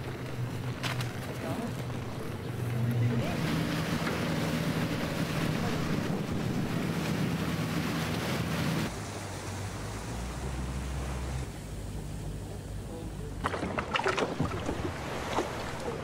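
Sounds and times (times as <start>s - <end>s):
outboard motor running: 0.0s - 8.9s, 10.5s - 16.0s
wind buffeting microphone: 0.0s - 8.9s
water rushing past: 0.0s - 12.4s, 13.2s - 16.0s.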